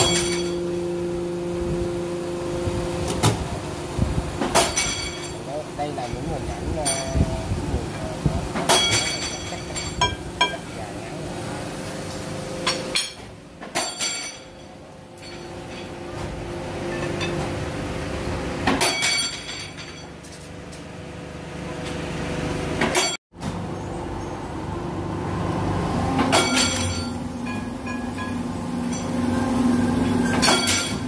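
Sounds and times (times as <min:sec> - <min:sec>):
steel rods clanking together: 0:04.4 - 0:07.2, 0:08.6 - 0:10.8, 0:12.6 - 0:16.3, 0:18.6 - 0:20.5, 0:26.2 - 0:29.2, 0:30.2 - 0:31.0
machinery humming: 0:23.6 - 0:31.0.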